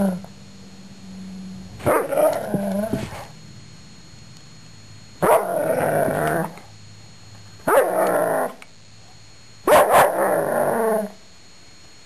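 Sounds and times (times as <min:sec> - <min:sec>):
dog barking drawn-out: 0:05.2 - 0:05.6, 0:07.7 - 0:08.1, 0:09.7 - 0:10.3.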